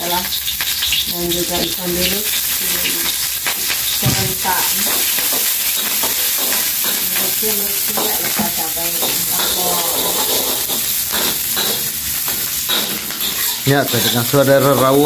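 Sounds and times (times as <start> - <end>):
food sizzling in hot oil: 0.0 - 15.0
metal spatula against wok: 3.0 - 14.4.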